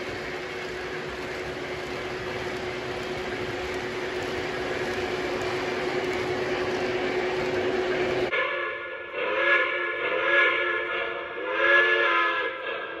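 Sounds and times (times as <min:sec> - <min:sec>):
model train wheels rattling: 0:00.0 - 0:08.3
steady hum: 0:00.0 - 0:08.3.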